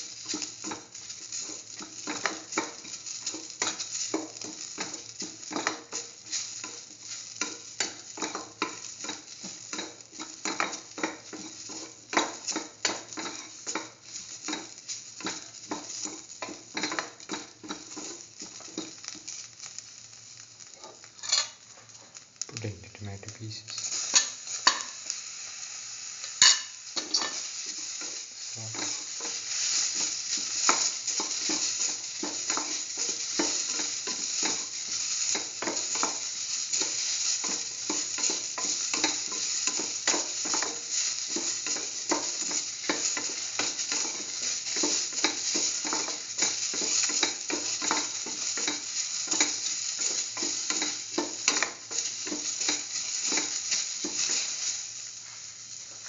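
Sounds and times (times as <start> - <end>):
vegetables sizzling in oil: 0.0 - 56.0
spatula scraping a pan: 26.2 - 55.5.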